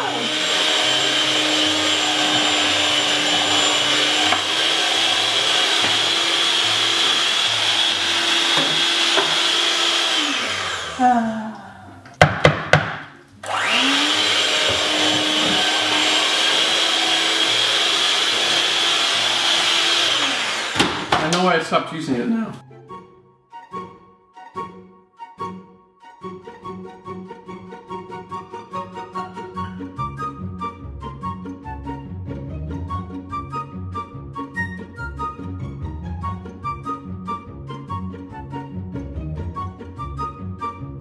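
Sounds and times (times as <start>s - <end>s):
electric hand mixer whining: 0.0s - 12.0s, 13.4s - 21.5s.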